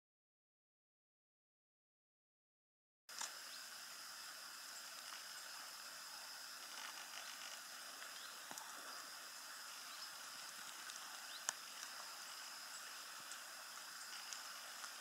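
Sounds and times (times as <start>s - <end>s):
faint hiss: 3.1s - 15.0s
thin steady high tone: 3.1s - 15.0s.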